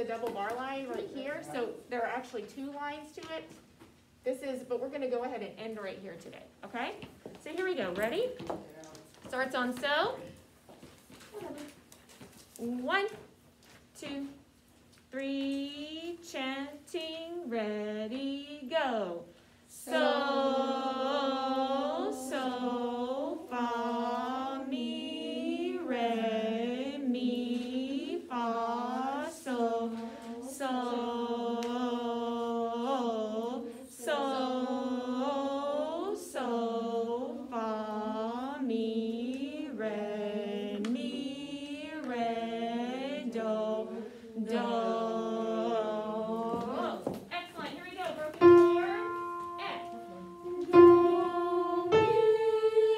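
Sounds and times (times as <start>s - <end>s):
woman singing slow melody: 48.4s - 52.9s.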